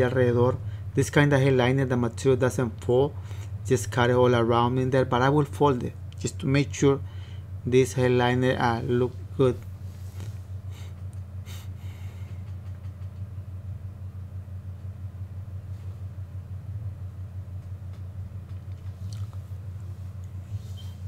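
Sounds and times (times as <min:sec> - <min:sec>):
air compressor humming: 0:06.8 - 0:21.0.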